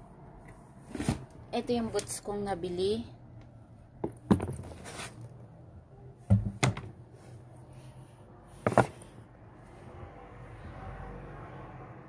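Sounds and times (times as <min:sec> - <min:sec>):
shoe boxes being handled: 0:00.8 - 0:01.3, 0:04.0 - 0:05.3, 0:08.6 - 0:09.1.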